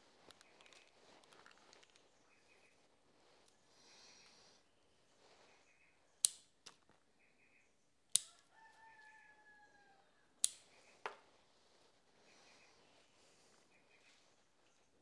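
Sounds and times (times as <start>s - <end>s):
rooster crowing: 8.2s - 10.3s
light click: 10.4s - 10.7s
shears snipping: 10.4s - 10.8s.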